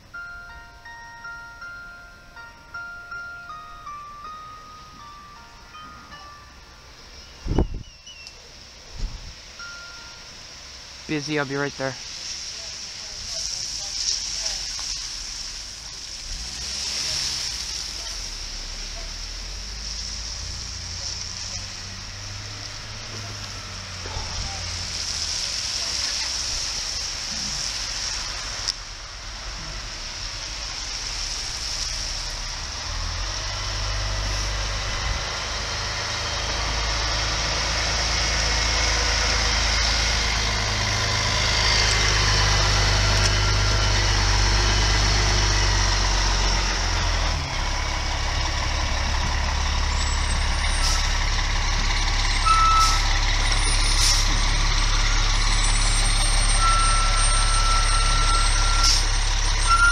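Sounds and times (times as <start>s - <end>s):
diesel engine rumbling: 0.0s - 59.9s
backup alarm beeping: 42.8s - 44.2s, 52.4s - 53.2s, 56.5s - 59.0s, 59.6s - 59.9s.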